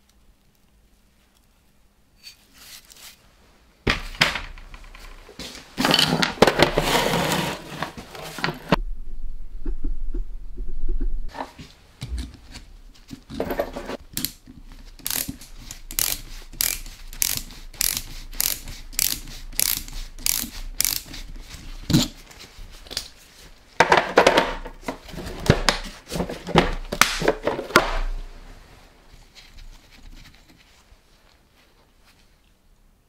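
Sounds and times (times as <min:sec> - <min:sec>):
ratcheting spanner clicking: 0:15.0 - 0:21.1.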